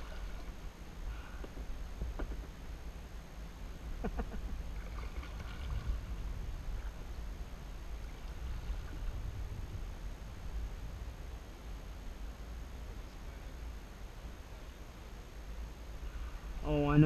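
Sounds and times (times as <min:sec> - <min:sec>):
water lapping around a kayak: 0:00.0 - 0:02.6, 0:04.1 - 0:11.4
low rumble: 0:03.8 - 0:13.7.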